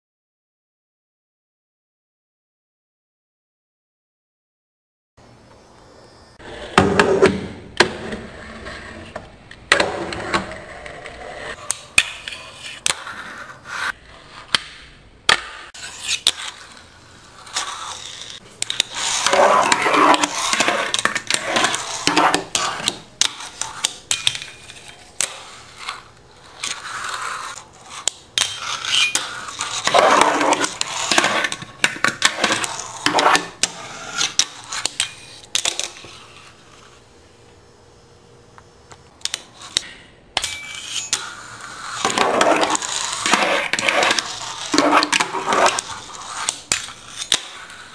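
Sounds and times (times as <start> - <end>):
fingerboard scraping and grinding: 6.4 - 9.2, 9.8 - 14.6, 15.5 - 37.0, 40.4 - 47.9.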